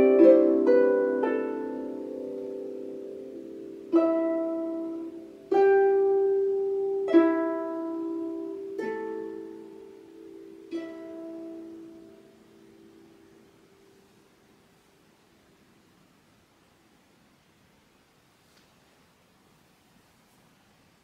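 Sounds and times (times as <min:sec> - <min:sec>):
harp plucked chords: 0:00.0 - 0:13.8.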